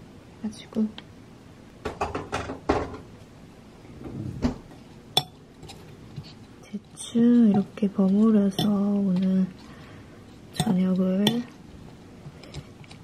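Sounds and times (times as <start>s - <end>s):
utensil clinking on glass bowl: 7.4s - 9.0s, 10.5s - 11.6s.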